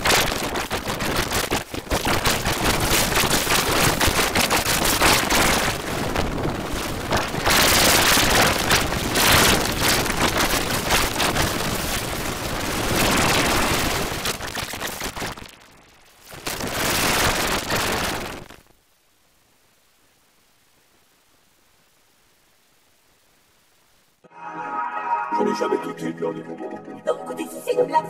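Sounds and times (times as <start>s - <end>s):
distorted crackling noise: 0.0s - 25.8s.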